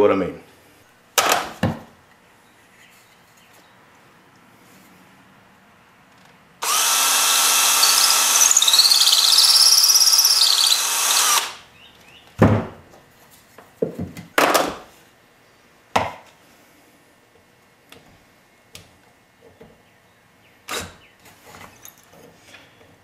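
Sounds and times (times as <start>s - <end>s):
cordless drill boring into wood: 6.6s - 11.6s
drill squeal: 6.6s - 11.6s.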